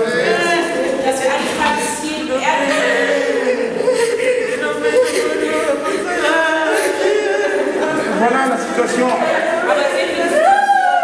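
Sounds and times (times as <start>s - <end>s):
choir singing: 0.0s - 11.0s.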